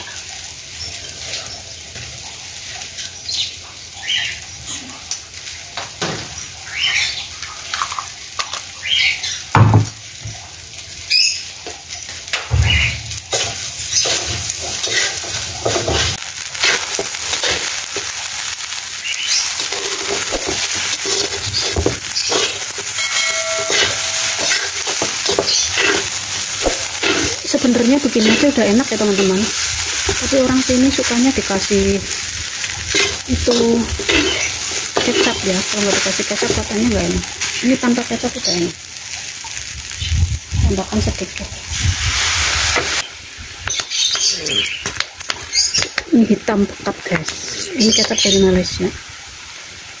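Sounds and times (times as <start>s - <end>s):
food sizzling: 0.0s - 50.0s
spatula scraping a wok: 13.3s - 18.8s, 19.4s - 37.8s.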